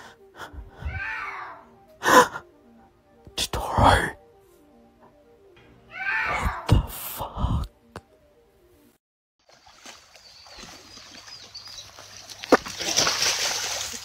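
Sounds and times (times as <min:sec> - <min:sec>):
loud cry falling in pitch: 0:05.9 - 0:06.7
creek water running: 0:09.4 - 0:14.0.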